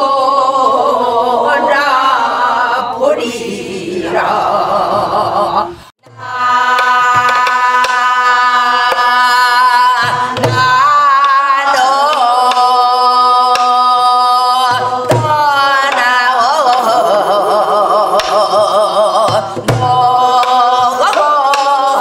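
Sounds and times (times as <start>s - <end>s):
woman singing long notes: 0.0s - 22.0s.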